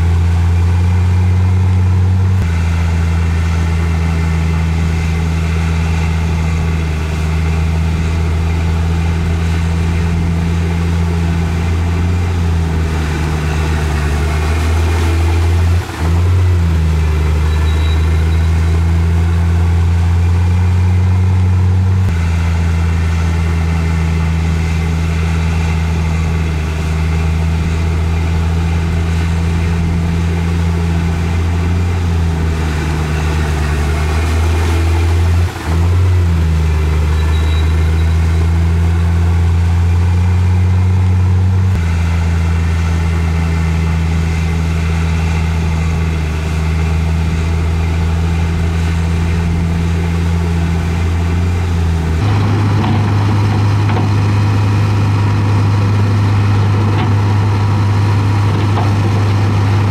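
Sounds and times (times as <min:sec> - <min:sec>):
heavy diesel engine running: 0:00.0 - 0:59.9.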